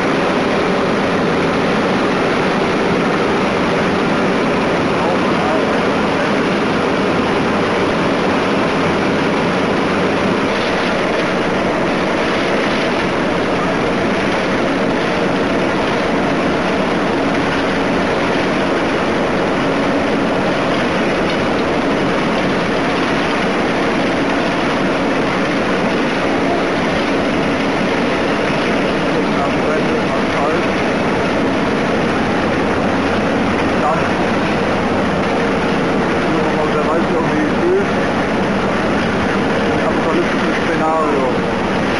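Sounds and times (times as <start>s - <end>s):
road-paving machinery engines: 0.0s - 41.9s.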